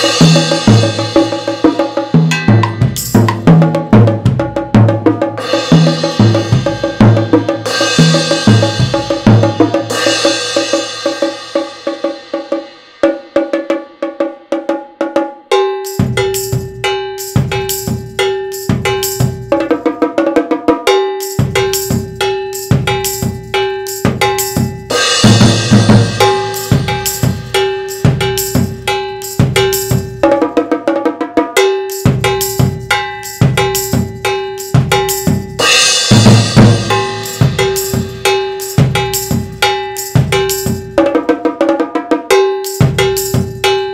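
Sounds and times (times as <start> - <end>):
metal instrument ringing note: 0.0 - 3.4, 21.0 - 30.2, 31.6 - 41.0
cymbal crashes: 0.0 - 3.5, 5.4 - 13.4, 15.8 - 19.6, 21.2 - 30.2, 31.8 - 41.0
drums played with sticks: 0.0 - 43.9.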